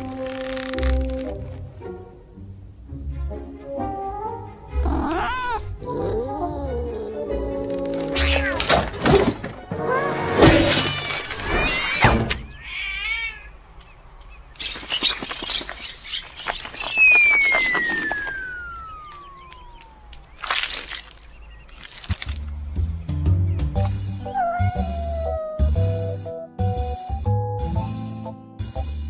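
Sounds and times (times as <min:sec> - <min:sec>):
music: 0:00.0 - 0:11.0, 0:22.2 - 0:29.0
long falling whistle: 0:16.9 - 0:19.8.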